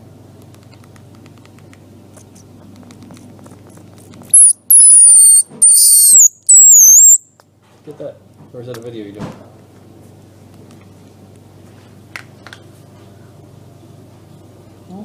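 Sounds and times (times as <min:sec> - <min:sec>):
baby squirrel squealing: 0:04.3 - 0:07.2.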